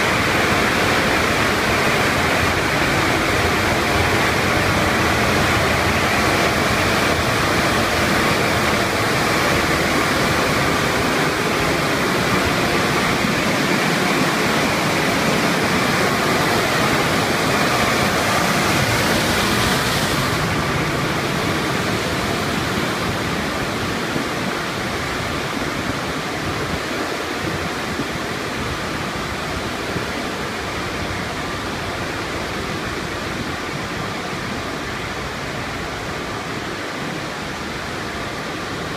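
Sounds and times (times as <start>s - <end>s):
car wash equipment rushing: 0.0s - 38.9s.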